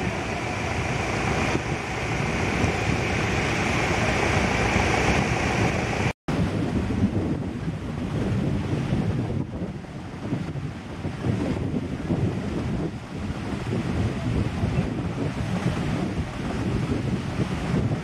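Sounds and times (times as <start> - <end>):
sea surf washing in: 0.0 - 18.0
wind buffeting microphone: 0.0 - 18.0.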